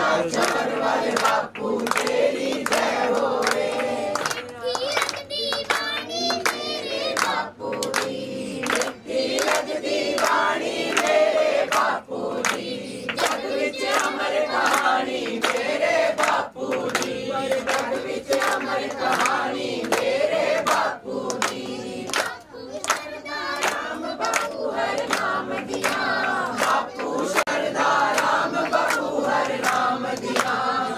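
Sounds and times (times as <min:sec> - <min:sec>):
hands clapping to the beat: 0:00.0 - 0:30.9
voices singing along: 0:00.0 - 0:30.9
girl singing: 0:04.4 - 0:07.3, 0:21.8 - 0:24.2.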